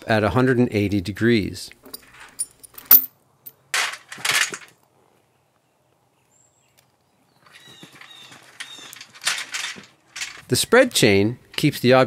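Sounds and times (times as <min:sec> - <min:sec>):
steel chain rattling on log: 0:01.9 - 0:04.7, 0:07.9 - 0:10.7.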